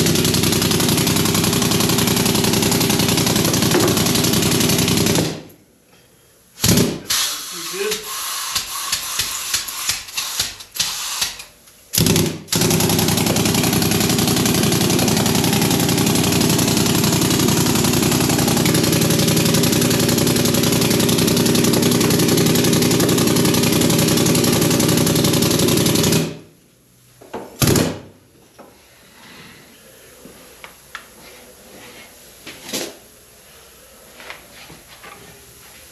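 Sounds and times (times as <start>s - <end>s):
pneumatic sand rammer hammering: 0.0s - 5.5s, 6.6s - 11.4s, 12.0s - 26.4s.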